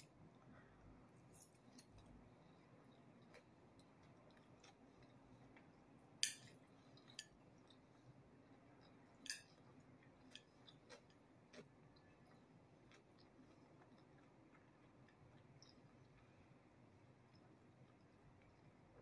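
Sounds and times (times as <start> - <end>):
faint chewing: 0.1 - 19.0
chopstick clicks: 6.2 - 6.4.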